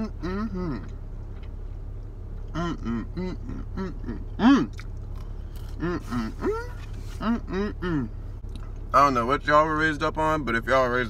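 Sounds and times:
man humming: 0:00.0 - 0:01.0, 0:02.5 - 0:04.8, 0:05.7 - 0:08.2
idling car and air conditioning hum: 0:00.0 - 0:11.0
chewing food: 0:04.6 - 0:05.8.

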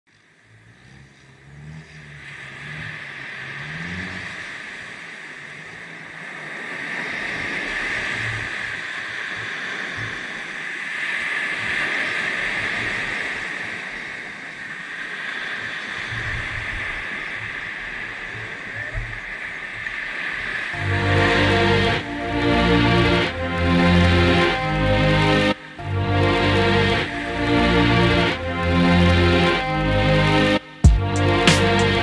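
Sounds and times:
small waves breaking on beach: 0:00.4 - 0:20.8.

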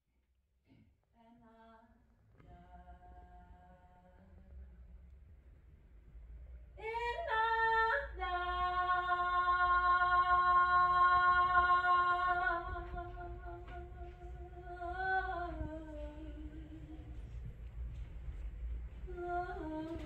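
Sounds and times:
woman singing a cappella: 0:01.2 - 0:04.6, 0:06.8 - 0:17.4, 0:19.0 - 0:20.0.

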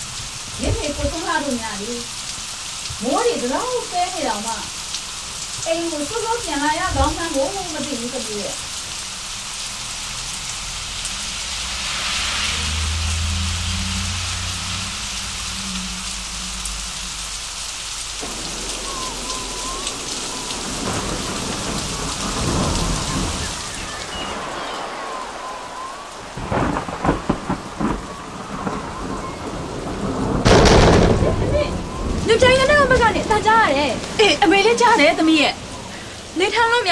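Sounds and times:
thunder rumble: 0:00.0 - 0:02.2, 0:02.8 - 0:08.6, 0:09.7 - 0:36.9
heavy rain falling: 0:00.0 - 0:36.9
sharp thunder cracks: 0:18.1 - 0:35.2.

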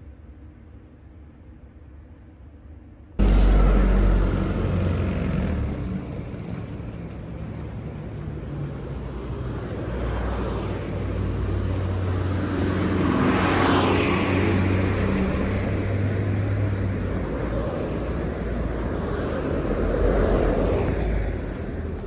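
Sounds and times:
vehicle passing close: 0:03.2 - 0:06.8
road traffic rumble: 0:03.2 - 0:22.0.

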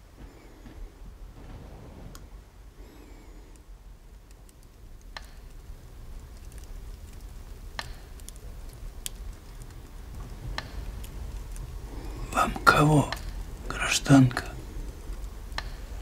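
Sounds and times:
low rumble: 0:00.0 - 0:04.2
faint clicks: 0:03.3 - 0:16.0.

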